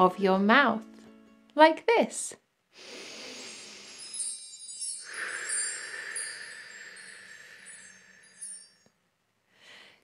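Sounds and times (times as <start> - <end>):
breath blown out: 2.8 - 4.3
twinkling wind chimes: 3.1 - 9.1.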